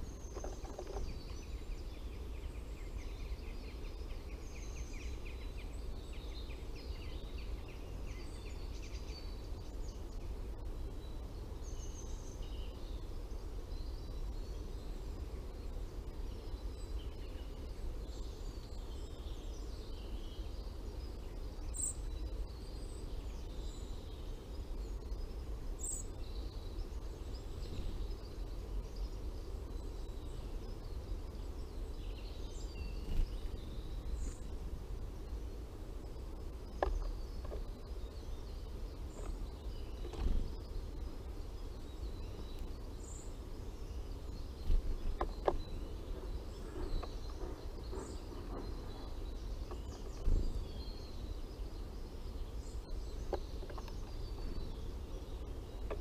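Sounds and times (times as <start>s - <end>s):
low background rumble: 0.0s - 56.0s
woodland birds singing: 0.0s - 56.0s.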